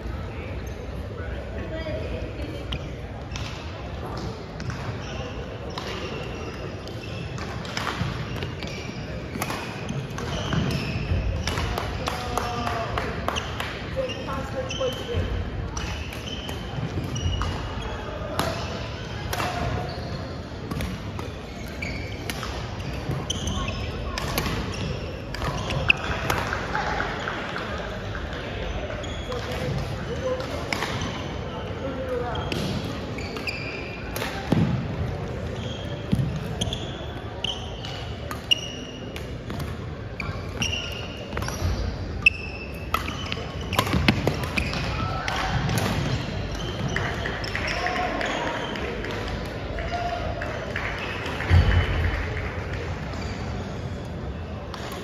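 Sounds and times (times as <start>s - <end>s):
shoes squeaking on floor: 4.6s - 11.5s, 14.0s - 26.3s, 28.6s - 29.8s, 30.8s - 34.6s, 35.3s - 39.2s, 40.1s - 48.9s
shoes squeaking on wooden floor: 21.3s - 22.2s
rackets striking shuttlecocks: 37.8s - 49.6s.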